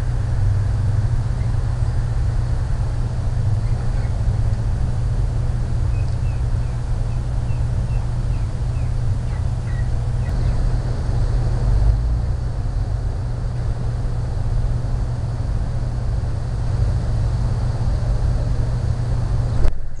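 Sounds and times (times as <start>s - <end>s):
steady low rumble: 0.0s - 20.0s.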